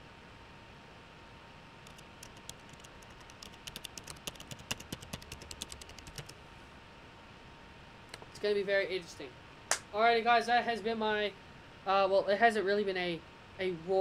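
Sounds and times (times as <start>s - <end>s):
computer keyboard typing: 1.8s - 6.4s.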